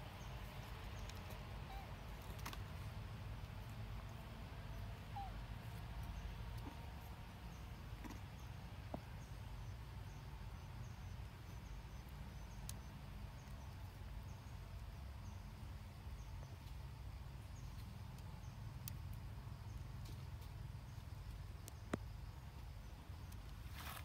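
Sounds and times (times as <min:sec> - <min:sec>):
faint high chirps: 0:01.0 - 0:01.9.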